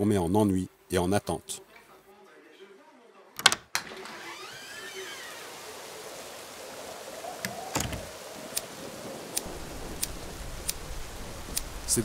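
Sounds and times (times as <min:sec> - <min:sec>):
storm wind and rain: 0:03.9 - 0:12.0.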